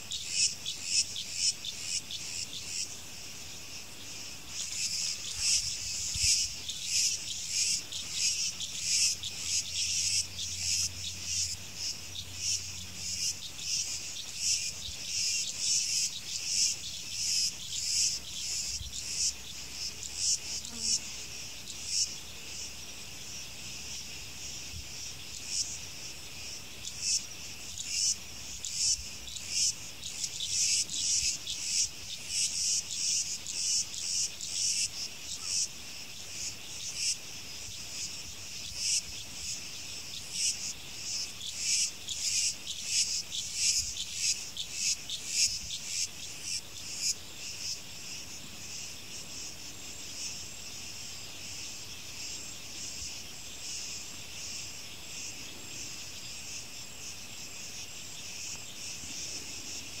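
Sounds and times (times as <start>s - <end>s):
insects shrilling: 0.0s - 22.7s.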